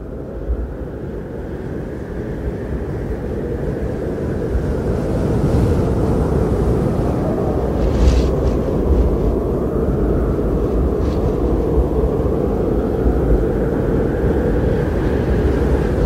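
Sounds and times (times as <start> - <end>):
strong wind roaring: 0.0 - 16.0.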